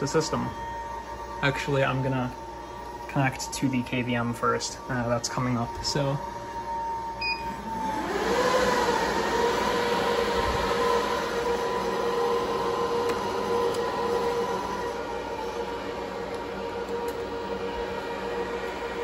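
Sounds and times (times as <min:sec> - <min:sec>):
high-pitched fan whine: 0:00.0 - 0:19.0
server fans rushing air: 0:00.0 - 0:19.0.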